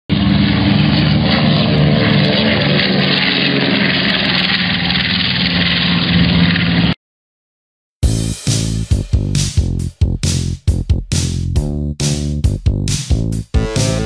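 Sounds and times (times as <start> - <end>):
model airplane engine at high throttle: 0.1 - 7.0.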